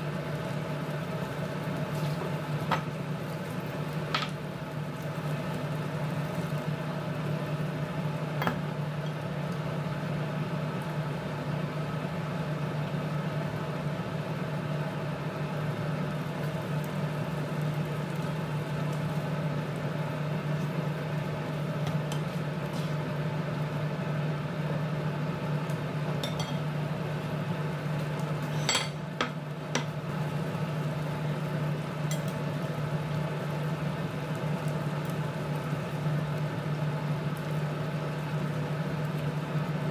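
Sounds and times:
sauce simmering in a frying pan: 0.0s - 39.9s.

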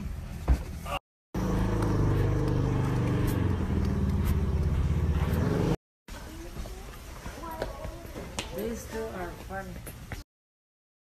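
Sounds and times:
vehicle engine running: 1.4s - 5.8s.

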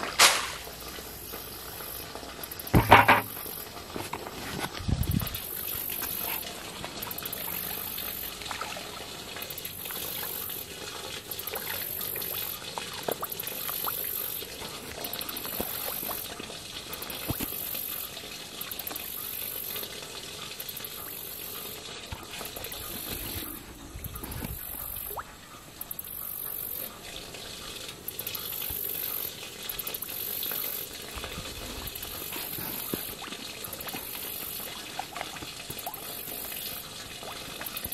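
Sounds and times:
fish splashing in water: 5.4s - 25.3s.

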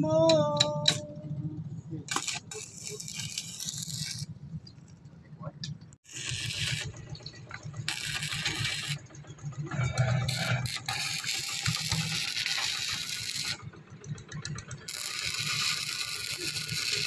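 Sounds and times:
low hum: 0.0s - 16.7s
arc welding crackling hiss: 2.1s - 4.3s, 6.0s - 7.0s, 7.9s - 9.0s, 10.1s - 13.6s, 14.9s - 17.0s.

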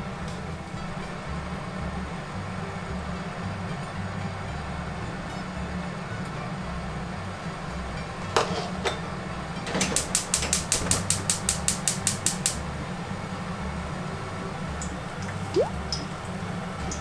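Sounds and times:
spark igniter clicking: 10.0s - 12.6s.

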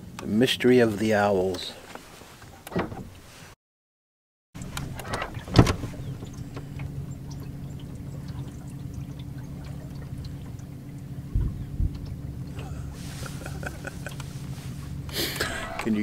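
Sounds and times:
low hum: 4.6s - 16.0s.

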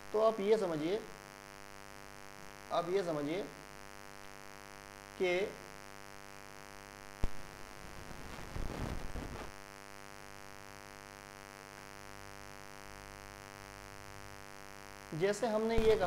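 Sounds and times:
electrical hum: 0.0s - 16.0s
crackling noise: 7.1s - 9.7s, 15.7s - 16.0s.

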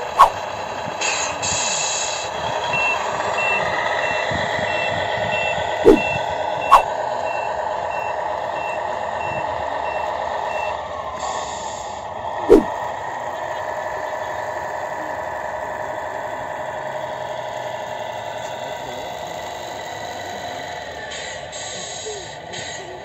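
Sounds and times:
diesel engine running: 0.0s - 23.0s
reversing alarm beeping: 2.6s - 11.8s.

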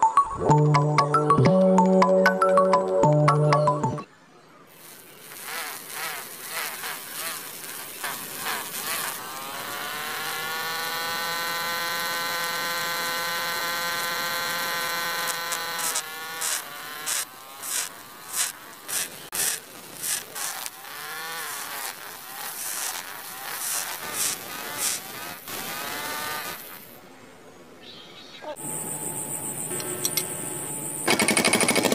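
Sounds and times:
blade scraping on sander wheel: 4.8s - 27.0s
small electric motor whining: 4.8s - 27.0s.

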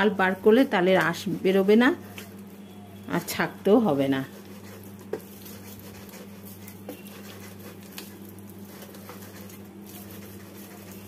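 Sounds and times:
fruit squishing against strainer: 4.2s - 11.0s.

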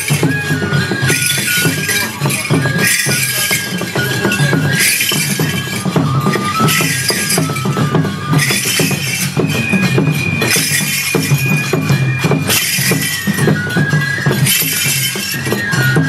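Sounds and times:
bamboo flute long notes: 0.0s - 16.0s
hand cymbals clanging: 0.0s - 16.0s
steady drum beat: 0.0s - 16.0s.

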